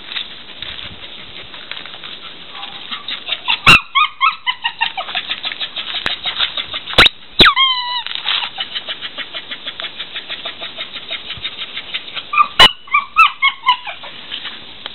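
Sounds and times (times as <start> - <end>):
rubber squeaky toy squeaking: 7.0 - 8.5.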